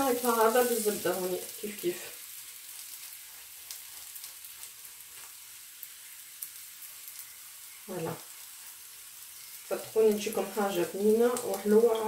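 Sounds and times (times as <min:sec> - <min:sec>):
butter sizzling in a pan: 0:00.0 - 0:12.0
faint crackles: 0:00.0 - 0:12.0.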